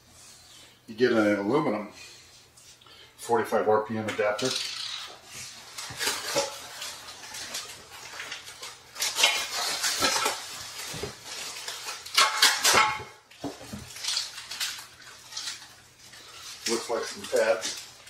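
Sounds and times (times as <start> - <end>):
packaging rustling: 4.4 - 18.0.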